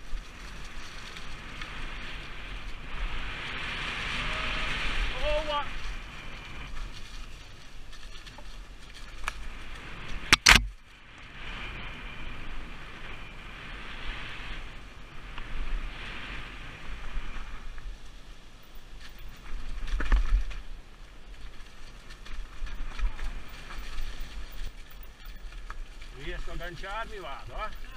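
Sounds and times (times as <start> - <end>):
bike tyres rolling over leaves: 0.0 - 27.9
bike jolt: 18.9 - 26.9.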